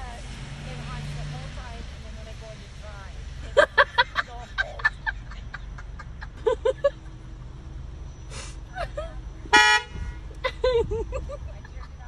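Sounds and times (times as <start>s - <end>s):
car horn toots: 9.5s - 10.3s.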